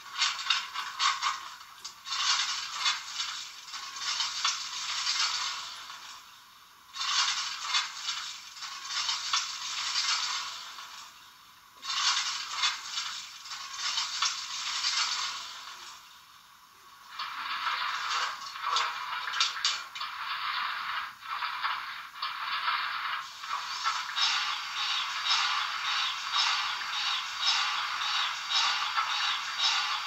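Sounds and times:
steam locomotive sounds from small speaker: 16.8s - 30.0s.

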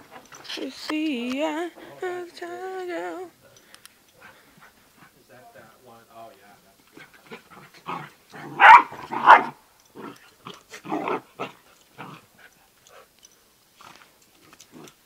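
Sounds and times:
dogs yapping and growling: 6.9s - 15.0s
dogs barking: 7.0s - 12.2s.

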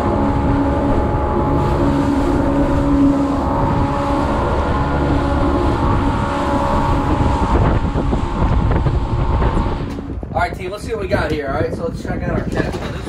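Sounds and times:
outboard motor running: 0.0s - 10.3s
water and wind rumble: 0.0s - 13.0s.

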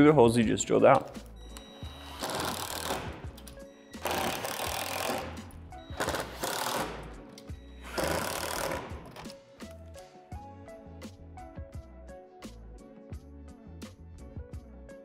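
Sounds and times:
background music: 0.0s - 15.0s
impact driver driving screws: 2.0s - 3.2s, 4.0s - 5.4s, 6.0s - 7.1s, 7.8s - 9.3s.

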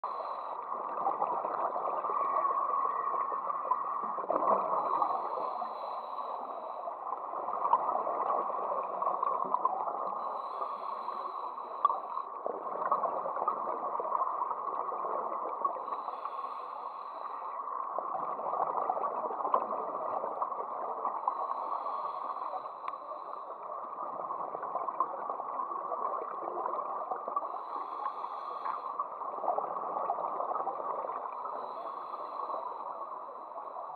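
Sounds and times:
muffled rush of water: 0.0s - 33.9s
diver breathing through a regulator: 4.3s - 7.2s, 10.0s - 13.7s, 15.7s - 17.7s, 21.2s - 23.7s, 27.4s - 33.9s.

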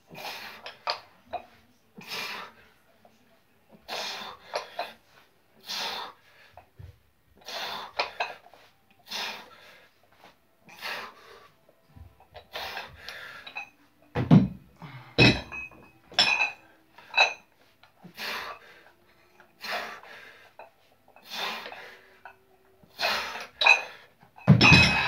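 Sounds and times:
iron plates clinking: 15.2s - 17.4s, 23.6s - 25.0s.

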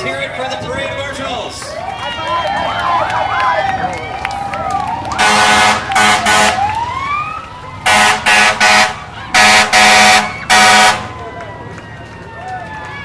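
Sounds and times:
siren wailing: 1.7s - 13.0s
fire engine air horn blasts: 5.2s - 6.9s, 7.8s - 11.1s.

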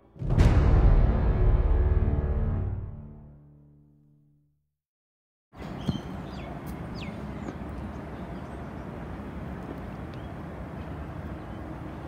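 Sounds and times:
low rumble of background noise: 5.6s - 12.0s.

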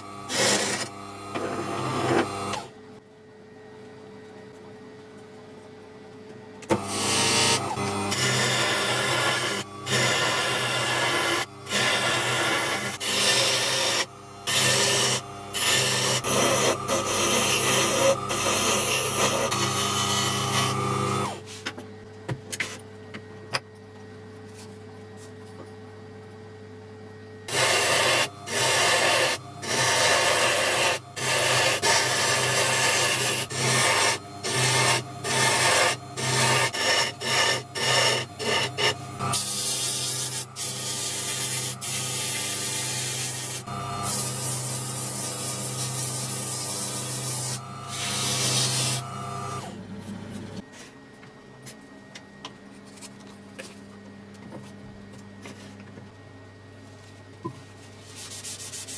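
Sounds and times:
wood lathe humming: 0.0s - 2.7s, 6.7s - 21.4s, 27.5s - 49.8s.

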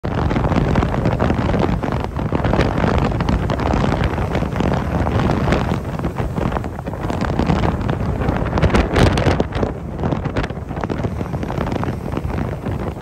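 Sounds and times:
wind buffeting microphone: 0.0s - 13.0s
sea waves breaking over rocks: 0.1s - 13.0s.

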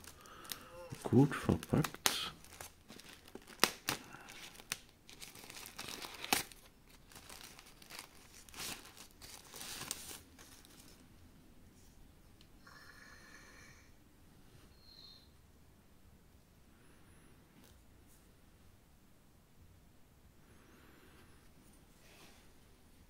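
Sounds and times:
packaging crinkling and tearing: 0.0s - 11.0s.

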